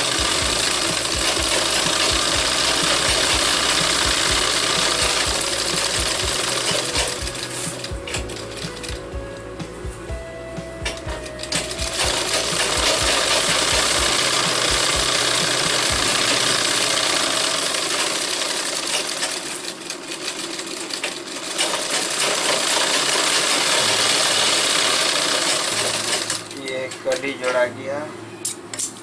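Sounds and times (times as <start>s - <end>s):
sewing machine running: 0.0s - 9.2s, 10.8s - 27.0s.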